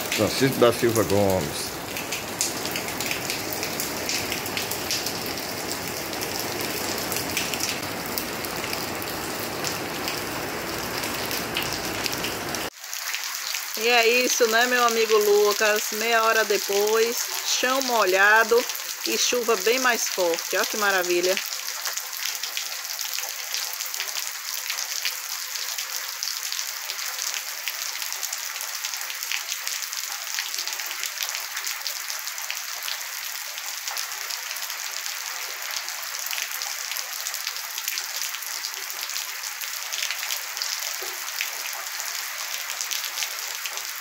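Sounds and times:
steady rain on wet ground: 0.0s - 44.0s.

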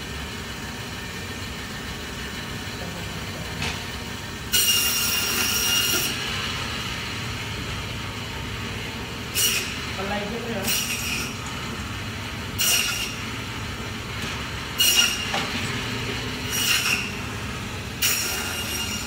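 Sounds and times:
band saw humming: 4.2s - 19.0s
saw blade whining through bone: 4.6s - 6.2s, 16.5s - 17.2s, 18.0s - 19.0s.

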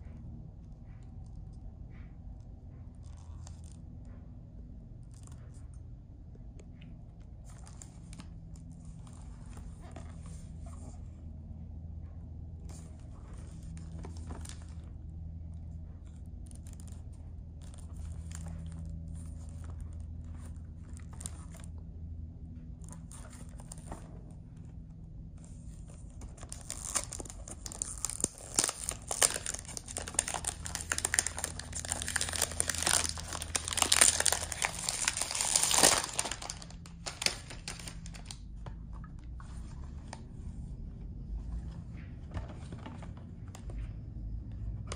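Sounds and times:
cellophane crinkling: 25.5s - 38.6s.

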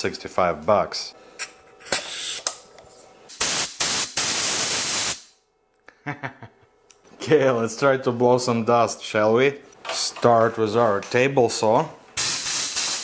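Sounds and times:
air blow gun hissing: 1.9s - 2.4s, 3.3s - 5.3s, 12.2s - 13.0s.

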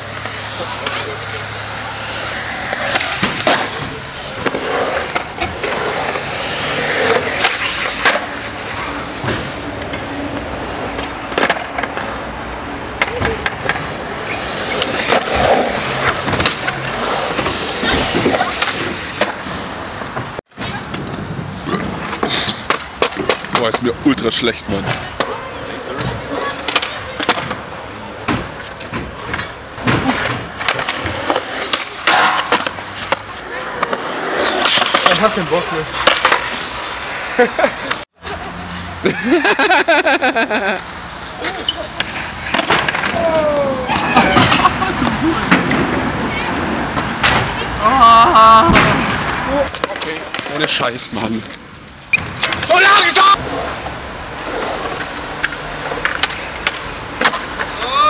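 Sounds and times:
skateboard scrape: 0.0s - 23.8s, 24.7s - 39.5s, 40.8s - 58.0s
skateboard wheels rolling on concrete: 0.0s - 58.0s
skateboard clacks: 0.1s - 12.3s, 21.8s - 23.9s, 40.7s - 50.8s, 52.2s - 58.0s.

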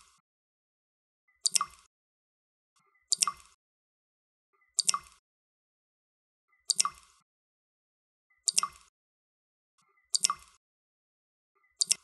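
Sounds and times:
water drops plinking: 1.4s - 1.9s, 3.1s - 3.6s, 4.8s - 5.2s, 6.7s - 7.2s, 8.4s - 8.9s, 10.2s - 10.6s, 11.8s - 12.0s.

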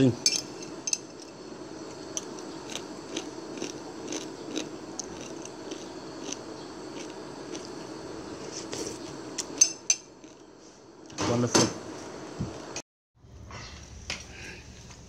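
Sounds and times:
soup bubbling: 0.7s - 10.6s.

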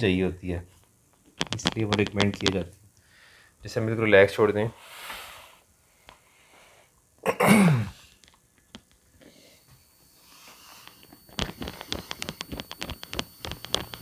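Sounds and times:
light rapid taps: 1.4s - 2.6s.

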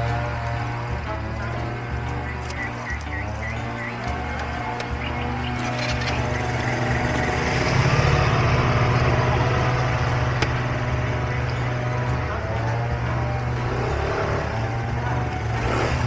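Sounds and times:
motor scooter engine revving: 0.0s - 16.0s.

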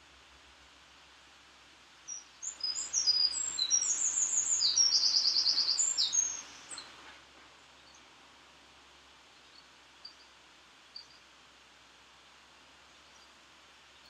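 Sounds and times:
songbird singing trills: 2.1s - 7.0s.

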